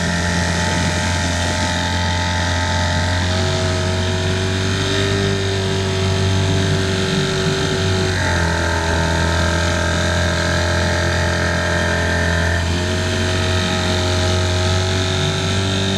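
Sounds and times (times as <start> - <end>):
motorboat engine humming: 0.0 - 15.9.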